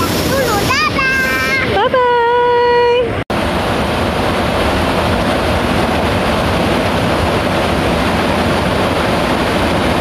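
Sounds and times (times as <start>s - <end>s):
river rushing over boulders: 3.4s - 10.0s.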